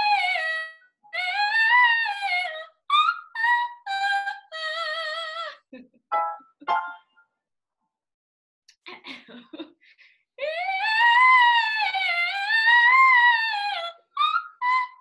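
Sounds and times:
soprano voice singing: 0:00.0 - 0:05.5, 0:10.4 - 0:15.0.

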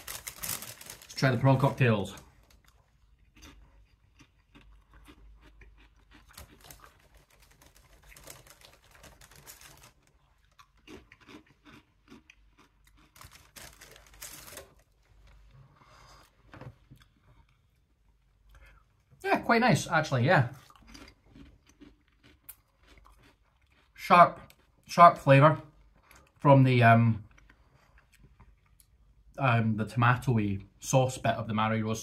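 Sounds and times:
person crunching crisps: 0:00.0 - 0:15.0, 0:20.6 - 0:24.7.

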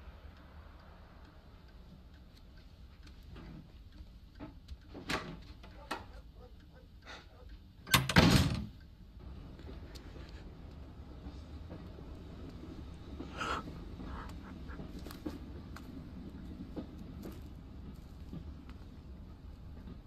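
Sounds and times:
faint clicks and knocks: 0:00.8 - 0:20.0
steady low rumble: 0:08.8 - 0:20.0.

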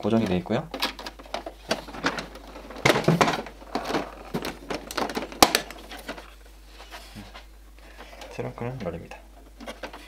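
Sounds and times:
plastic clicks and knocks: 0:00.2 - 0:06.3.

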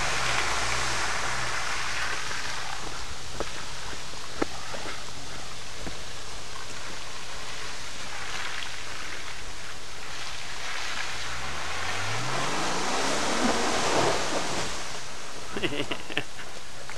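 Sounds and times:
engine revving: 0:00.0 - 0:02.9, 0:10.8 - 0:15.1
tyres rushing through water and mud: 0:00.0 - 0:16.9.

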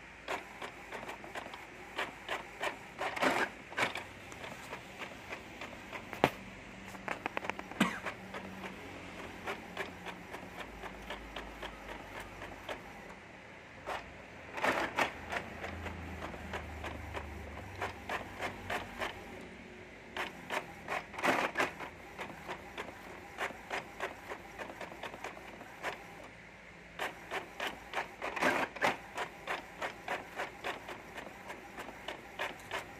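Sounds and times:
printer clatter bursts: 0:00.2 - 0:13.2, 0:13.8 - 0:19.4, 0:20.1 - 0:26.3, 0:27.0 - 0:32.9
inkjet printer carriage clicking: 0:00.3 - 0:13.0, 0:14.6 - 0:19.4, 0:27.0 - 0:32.9.

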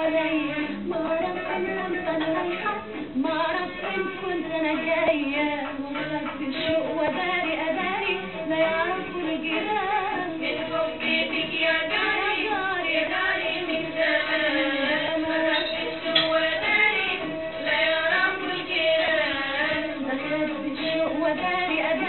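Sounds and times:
woman singing over accompaniment: 0:00.0 - 0:22.0.

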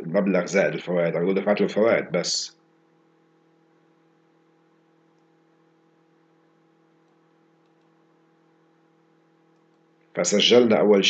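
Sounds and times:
low electrical hum: 0:00.0 - 0:11.0
faint clicks: 0:06.9 - 0:08.0, 0:09.5 - 0:10.1.

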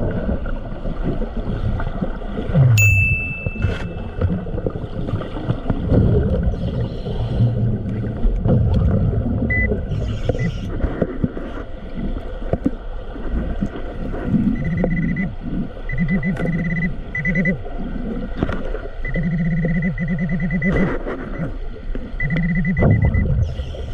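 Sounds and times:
low underwater rumble: 0:00.0 - 0:23.9
metal detector warbling tone: 0:02.6 - 0:04.4, 0:15.9 - 0:17.6, 0:19.0 - 0:20.8, 0:22.2 - 0:23.7.

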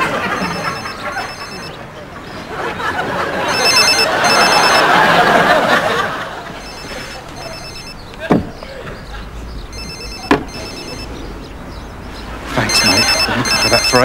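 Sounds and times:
phone ringtone beeps: 0:00.0 - 0:01.8, 0:03.2 - 0:08.1, 0:09.7 - 0:11.3, 0:12.6 - 0:14.0.

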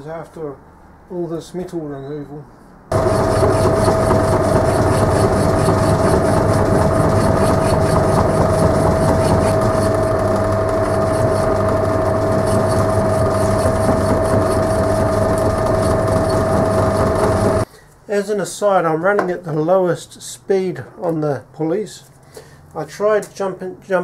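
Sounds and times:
fast even ticking: 0:02.9 - 0:17.6
lathe boring bar whining: 0:02.9 - 0:17.6.

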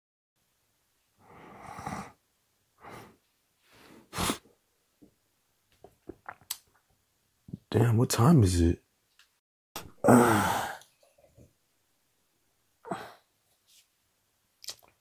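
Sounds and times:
person breathing: 0:02.8 - 0:04.4.

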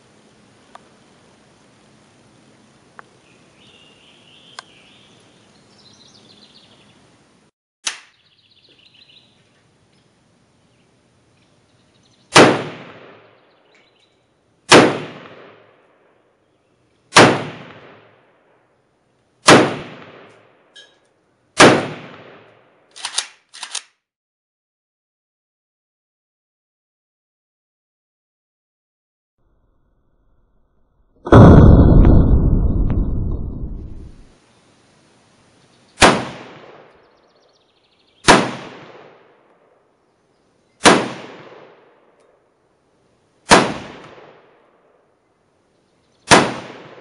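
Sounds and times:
small click: 0:04.5 - 0:04.7, 0:07.8 - 0:08.1, 0:22.9 - 0:24.0
rifle shots with echoing tail: 0:12.3 - 0:13.4, 0:14.7 - 0:16.0, 0:17.1 - 0:18.3, 0:19.4 - 0:20.6, 0:21.6 - 0:22.8, 0:31.3 - 0:34.3, 0:36.0 - 0:37.0, 0:38.2 - 0:39.5, 0:40.8 - 0:42.2, 0:43.5 - 0:44.9, 0:46.3 - 0:47.0
quieter cracks: 0:43.5 - 0:44.8.

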